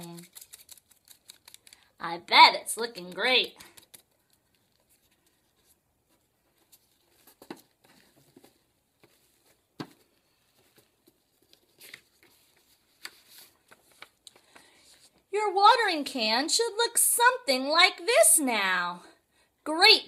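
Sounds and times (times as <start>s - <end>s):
paper rustling: 0.0s - 2.0s, 2.8s - 15.2s.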